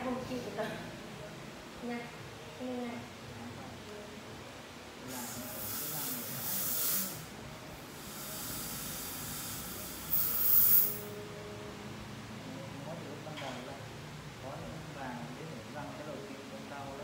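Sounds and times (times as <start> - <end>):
air syringe hissing: 5.1 - 7.3, 7.9 - 11.1.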